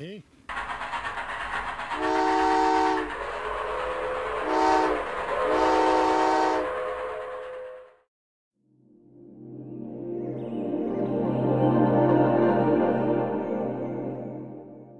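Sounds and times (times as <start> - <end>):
rumbling of running train: 0.5 - 8.1
steam train whistle blasts: 2.0 - 7.8.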